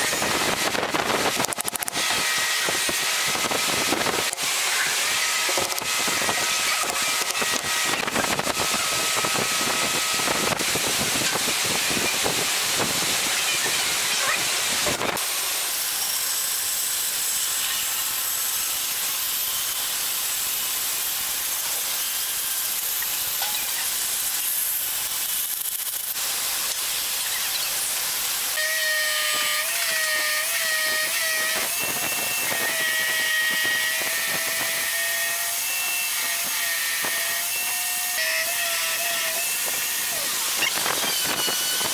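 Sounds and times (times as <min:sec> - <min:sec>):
drum sander whining: 0:00.0 - 0:15.2, 0:28.6 - 0:41.9
band saw cutting wood: 0:00.0 - 0:41.9.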